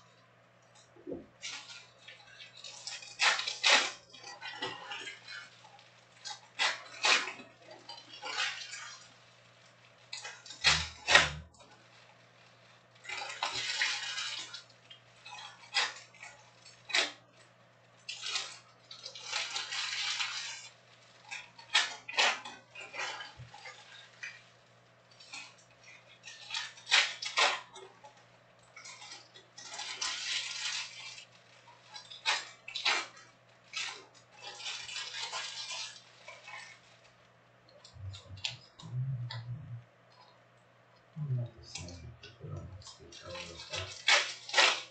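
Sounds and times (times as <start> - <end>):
foil packs crinkling: 1.4 - 17.2, 17.8 - 37.2, 42.9 - 44.9.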